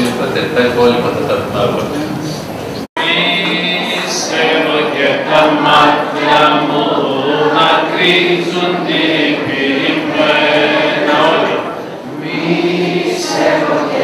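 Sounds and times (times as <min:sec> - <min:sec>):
choir chanting a hymn: 0:03.0 - 0:14.0.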